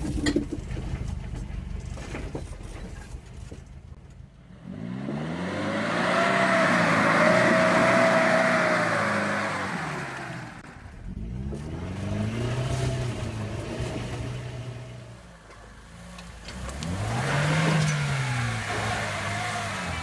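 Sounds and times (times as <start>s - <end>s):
engine revving: 4.4s - 15.2s, 16.1s - 20.0s.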